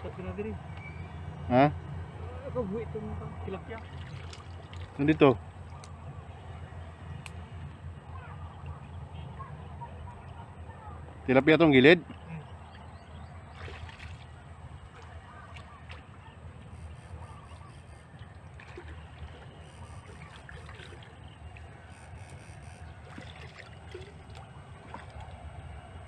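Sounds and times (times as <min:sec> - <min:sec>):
water sloshing and trickling: 0:02.8 - 0:07.0, 0:07.6 - 0:26.0
small splashes: 0:03.6 - 0:05.9, 0:13.5 - 0:16.4, 0:17.5 - 0:22.2, 0:22.9 - 0:25.6.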